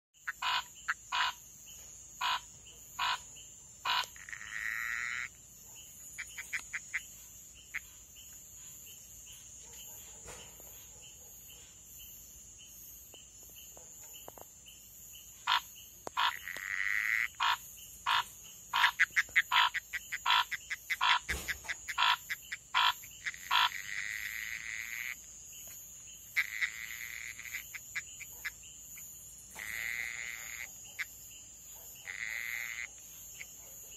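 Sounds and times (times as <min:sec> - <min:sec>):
drawn-out frog notes: 0:00.2 - 0:09.4, 0:15.1 - 0:33.8
frogs clicking calls: 0:00.2 - 0:10.0, 0:12.9 - 0:33.9.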